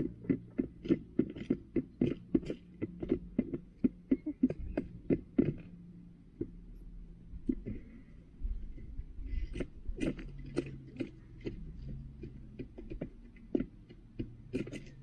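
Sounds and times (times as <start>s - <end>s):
hen pecking plastic tray: 0.0s - 5.7s, 9.3s - 15.0s.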